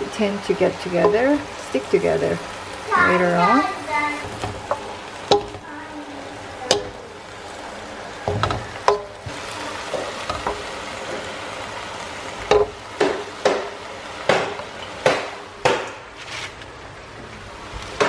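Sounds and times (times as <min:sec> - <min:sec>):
spinach sizzling in a frying pan: 0:00.0 - 0:18.0
wooden spatula knocking on pan: 0:00.8 - 0:01.5, 0:04.3 - 0:05.6, 0:06.6 - 0:07.0, 0:08.2 - 0:11.2, 0:12.4 - 0:16.0.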